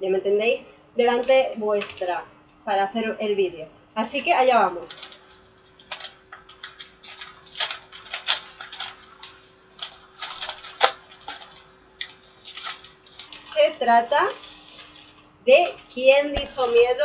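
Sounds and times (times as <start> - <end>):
paper envelope tearing: 4.8 - 13.5.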